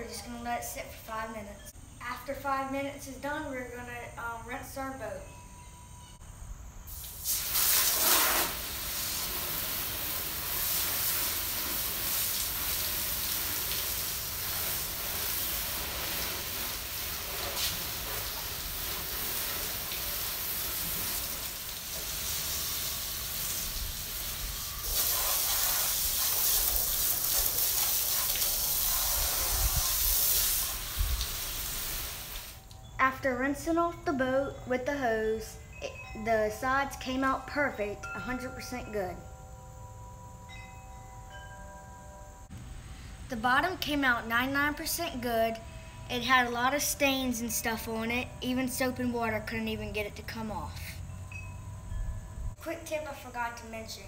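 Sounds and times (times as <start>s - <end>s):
hose spraying water on hull: 6.9s - 32.6s.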